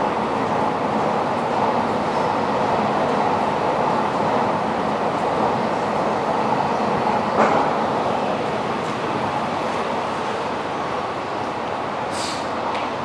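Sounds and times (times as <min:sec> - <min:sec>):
metro train rumbling: 0:00.0 - 0:13.0.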